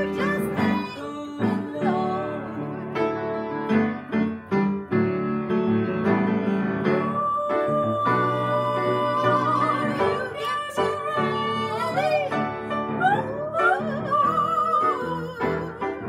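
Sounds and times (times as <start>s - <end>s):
woman singing operatically: 0.0s - 3.8s, 6.8s - 16.0s
upright piano: 0.0s - 16.0s.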